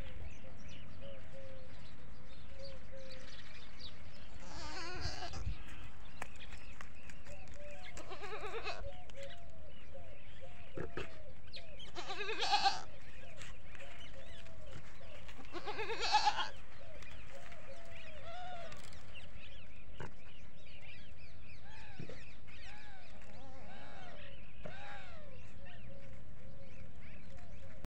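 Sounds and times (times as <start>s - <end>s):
goats bleating: 4.4s - 5.4s, 8.0s - 8.8s, 11.9s - 12.9s, 15.5s - 16.6s.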